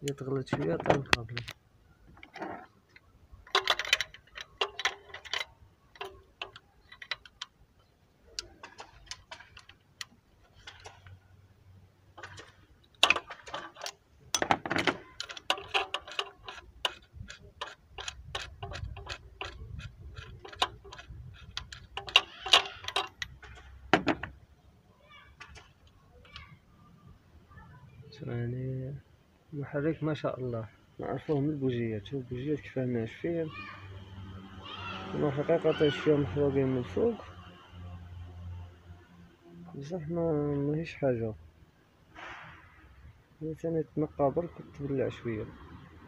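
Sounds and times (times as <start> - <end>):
ratchet wrench clicking: 15.2 - 23.4.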